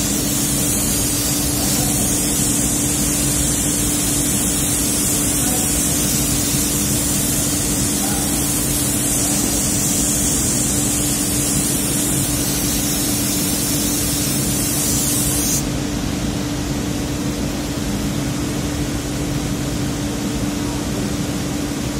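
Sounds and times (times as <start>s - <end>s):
spray gun hissing: 0.0s - 15.7s
steady machine hum: 0.0s - 21.9s.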